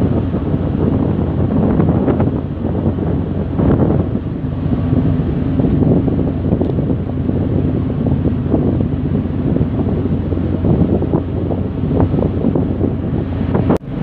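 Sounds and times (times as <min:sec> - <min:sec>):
low ship engine hum: 0:00.0 - 0:14.0
wind buffeting microphone: 0:00.0 - 0:14.0.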